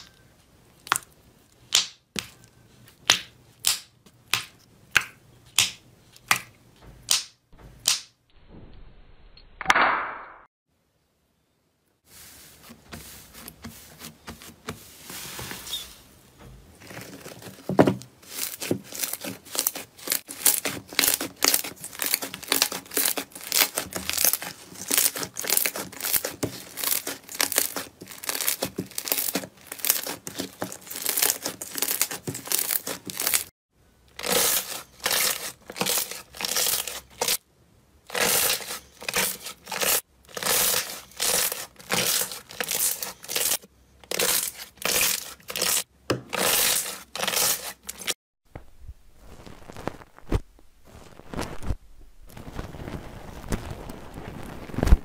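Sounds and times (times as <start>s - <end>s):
slime crackling and popping: 18.2s - 33.5s, 34.1s - 37.4s, 38.1s - 48.1s, 49.3s - 55.0s.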